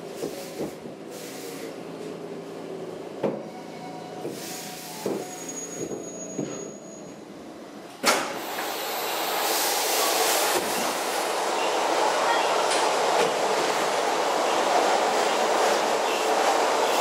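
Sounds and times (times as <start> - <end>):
metro train running: 0.0 - 17.0.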